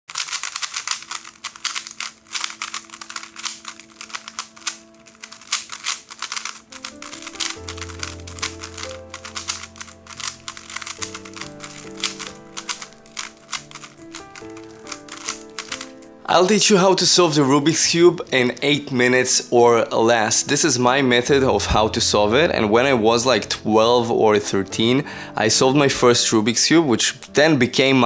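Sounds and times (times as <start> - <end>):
speedcube clicking as turned: 0.1 - 16.1
background music with held notes: 0.8 - 28.0
bass line: 21.3 - 23.8.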